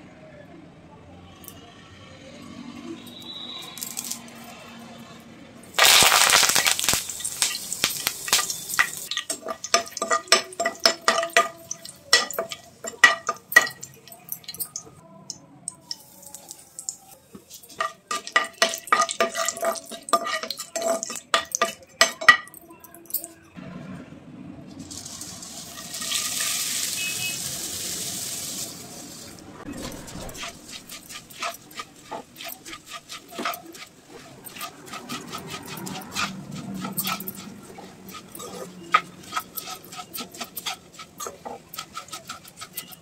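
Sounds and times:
oil sizzling: 0:05.7 - 0:14.9, 0:15.8 - 0:22.4, 0:24.7 - 0:43.0
puffed rice poured into pan: 0:05.8 - 0:09.1, 0:24.8 - 0:31.7
metal spatula scraping a pan: 0:05.8 - 0:14.8, 0:15.9 - 0:22.6, 0:29.6 - 0:43.0.

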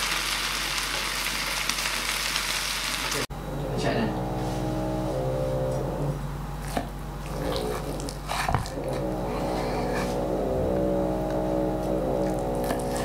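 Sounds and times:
motor humming: 0:03.3 - 0:13.0.

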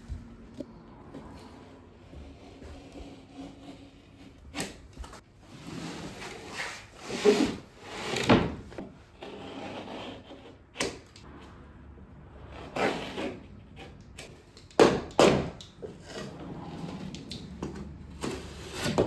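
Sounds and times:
plasterboard scraping and rubbing: 0:01.2 - 0:10.7, 0:15.8 - 0:19.0.

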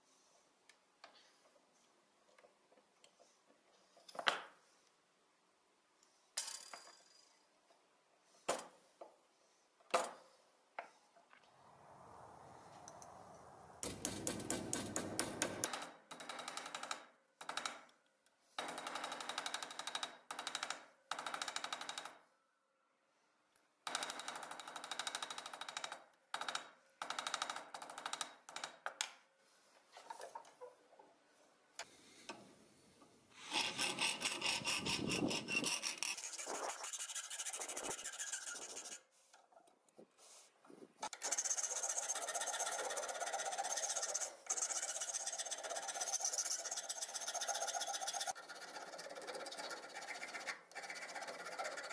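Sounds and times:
hammer tapping on metal: 0:13.8 - 0:15.8
hand file scraping metal: 0:33.4 - 0:39.1, 0:41.2 - 0:51.9.

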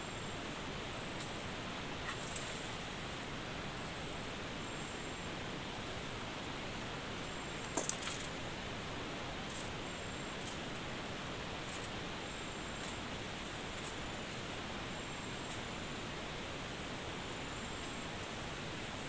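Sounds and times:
forest background hiss: 0:00.0 - 0:19.0
rustle with sharp clicks: 0:01.1 - 0:03.8, 0:07.2 - 0:08.4, 0:09.4 - 0:10.9, 0:11.6 - 0:14.5, 0:15.3 - 0:15.7.

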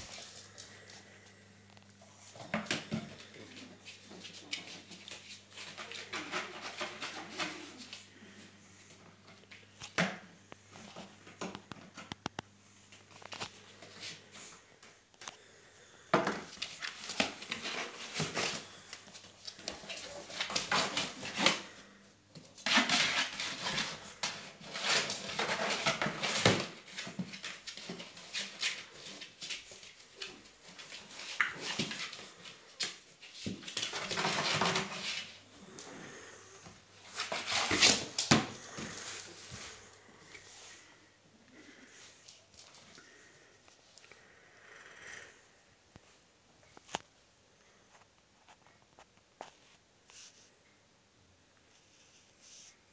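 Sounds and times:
puppy scratching in cardboard box: 0:19.4 - 0:21.7, 0:22.6 - 0:35.4, 0:37.0 - 0:39.5.

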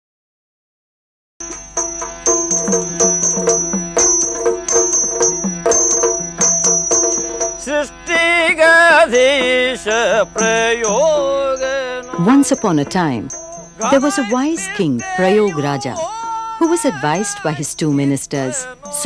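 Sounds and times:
drum strokes: 0:01.4 - 0:17.4
high ringing metallic tone: 0:01.4 - 0:19.0
person singing: 0:07.7 - 0:19.0.

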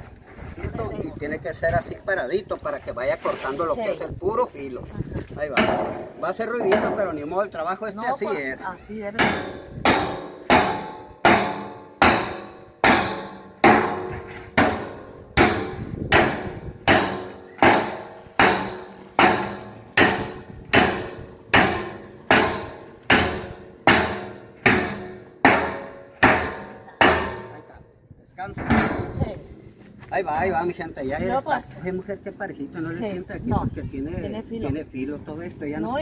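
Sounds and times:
machete striking steel drum: 0:09.2 - 0:27.6.

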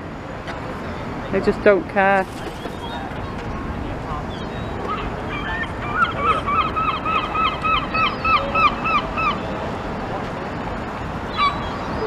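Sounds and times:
gull yelping call: 0:04.9 - 0:09.4, 0:11.3 - 0:11.9.

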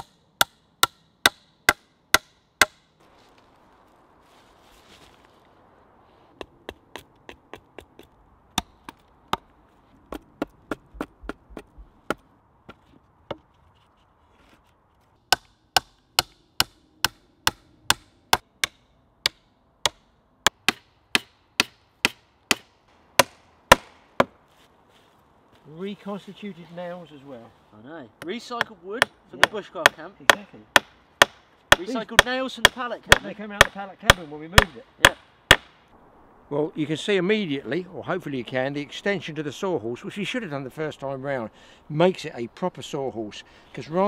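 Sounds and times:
hammer striking nails into wood: 0:00.0 - 0:02.8, 0:15.3 - 0:24.3, 0:28.6 - 0:35.7.

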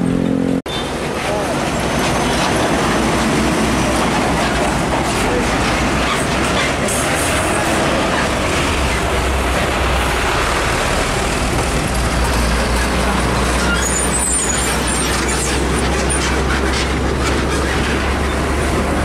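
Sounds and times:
trucks passing: 0:00.0 - 0:19.0
high squeaks: 0:12.7 - 0:16.6.

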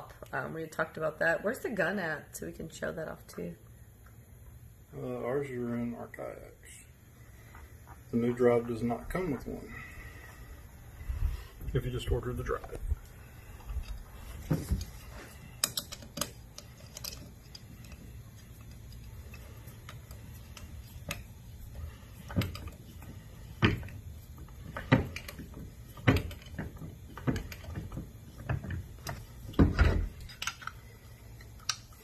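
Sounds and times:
plastic parts clicking and knocking: 0:15.6 - 0:21.3, 0:23.6 - 0:32.0.

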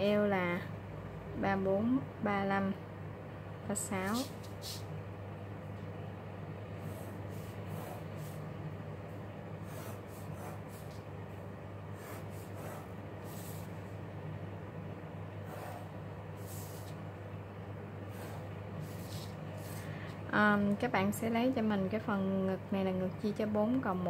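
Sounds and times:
steady low hum: 0:00.0 - 0:24.0
pen scratching along ruler: 0:06.8 - 0:08.4, 0:09.6 - 0:11.0, 0:12.0 - 0:13.7, 0:15.4 - 0:17.0, 0:18.1 - 0:19.8.

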